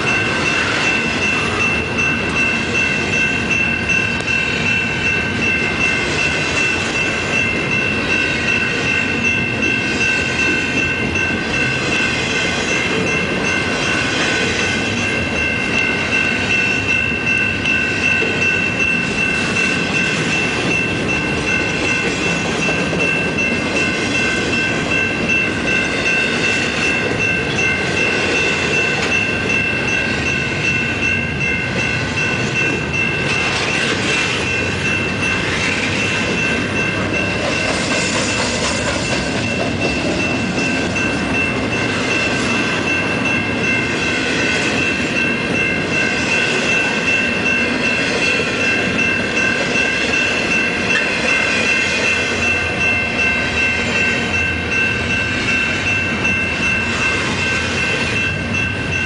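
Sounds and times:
freight train rumbling past: 0.0 - 59.0
high-pitched ringing: 0.0 - 59.0.

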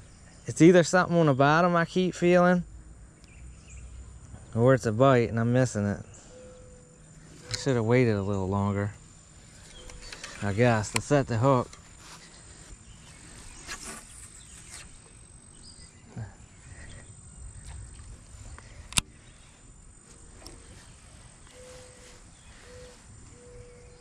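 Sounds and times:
insects chirring: 0.0 - 24.0
sharp click: 17.6 - 19.1.

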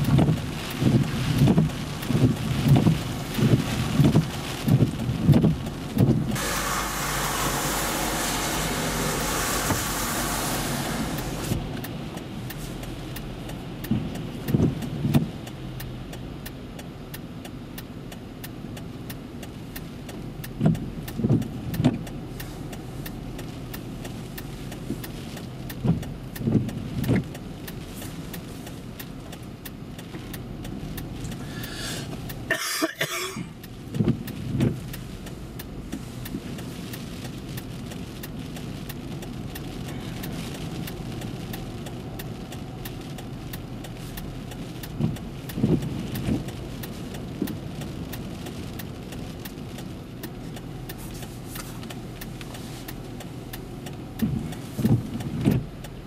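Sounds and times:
tyres hissing through water: 6.3 - 11.6, 31.3 - 33.5.

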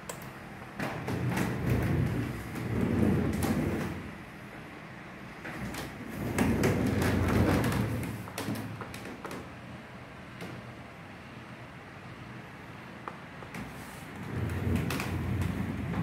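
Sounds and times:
low rumbling: 14.2 - 16.0.

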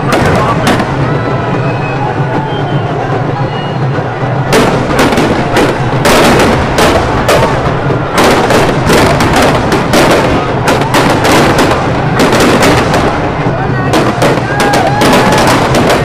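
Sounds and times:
firecrackers banging: 0.0 - 16.0.

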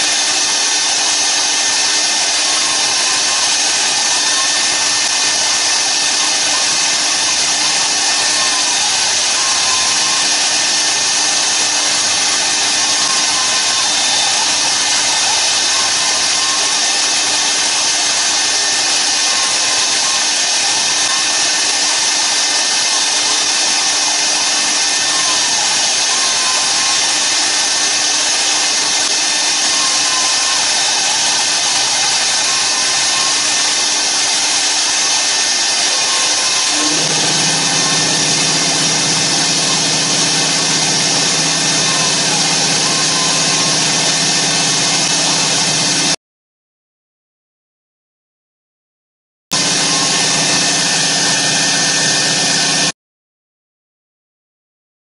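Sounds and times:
router spindle whine and cutting hiss: 0.0 - 46.2, 49.6 - 52.9.

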